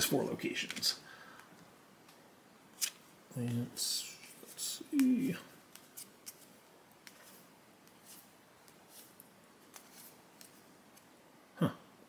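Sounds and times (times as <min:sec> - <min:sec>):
trading cards sliding in hand: 0:02.8 - 0:11.1.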